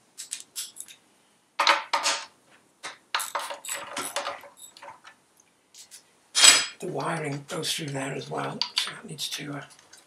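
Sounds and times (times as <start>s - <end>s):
metal hand tools clinking: 0.2s - 1.0s, 3.2s - 5.1s.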